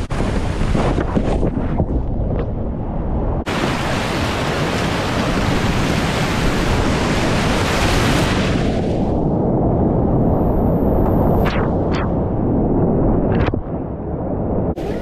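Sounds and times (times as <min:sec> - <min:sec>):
whitewater splashing over kayak: 0:03.5 - 0:09.0.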